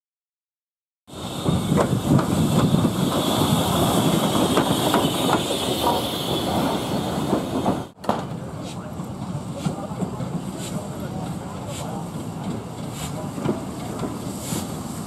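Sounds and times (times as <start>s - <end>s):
steam hissing: 1.1s - 7.9s, 10.4s - 15.0s
train wheels clattering on track: 1.1s - 15.0s.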